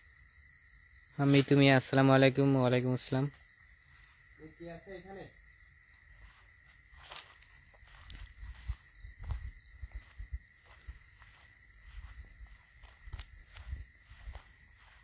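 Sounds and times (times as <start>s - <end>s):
crickets chirring: 0.0s - 15.0s
footsteps on grass: 3.4s - 15.0s.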